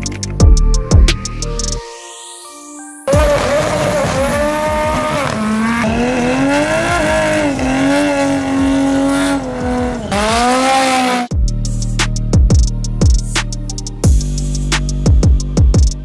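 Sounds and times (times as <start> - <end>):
car engine revving high: 3.1 - 11.3.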